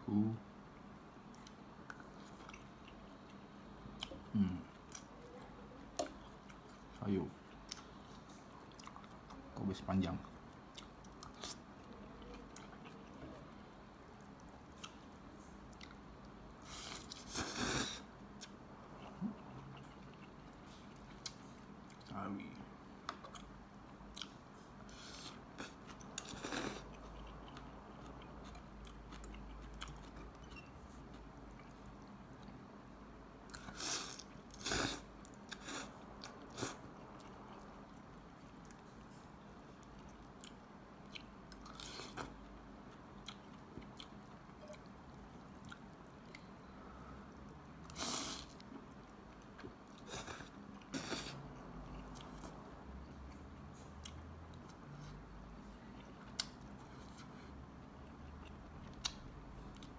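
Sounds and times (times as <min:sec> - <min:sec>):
close chewing: 0:25.5 - 0:32.6.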